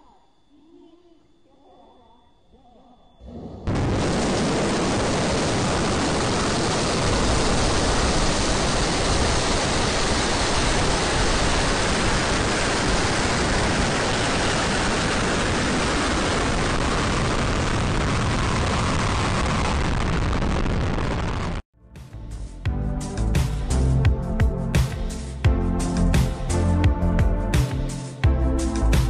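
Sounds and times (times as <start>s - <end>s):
rocket engines roaring at liftoff: 3.2s - 21.6s.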